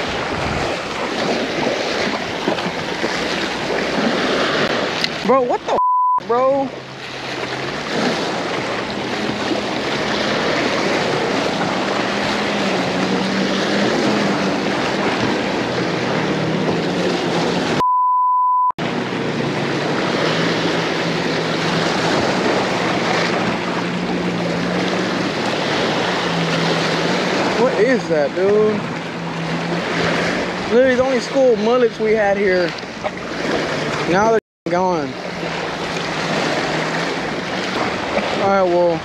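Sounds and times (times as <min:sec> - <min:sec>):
jet ski engine droning: 0:00.0 - 0:18.0, 0:18.8 - 0:39.0
censor bleep: 0:05.7 - 0:06.2, 0:17.8 - 0:18.8.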